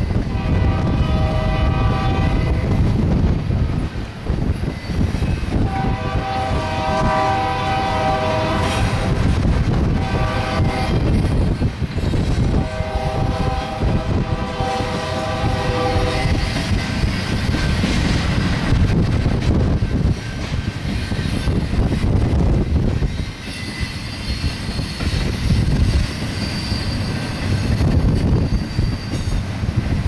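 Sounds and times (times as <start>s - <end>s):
freight train cars rumbling past: 0.0s - 30.0s
locomotive air horn: 0.2s - 2.8s, 5.6s - 9.2s, 9.9s - 11.1s, 12.5s - 16.5s.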